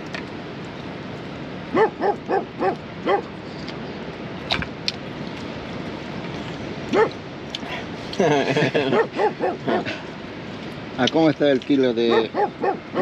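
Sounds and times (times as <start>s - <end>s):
dog barking: 1.7s - 3.3s, 6.9s - 7.2s, 8.9s - 10.0s, 12.1s - 13.0s.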